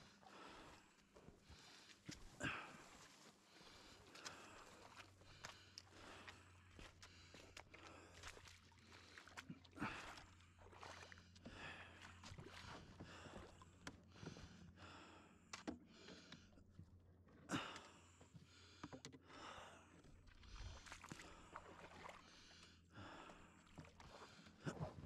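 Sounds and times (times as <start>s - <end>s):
footsteps on forest floor: 1.2s - 9.2s.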